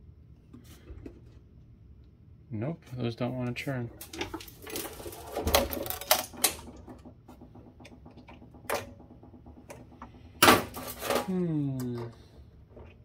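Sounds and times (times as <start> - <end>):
metal parts clattering and clicking: 10.4 - 11.3.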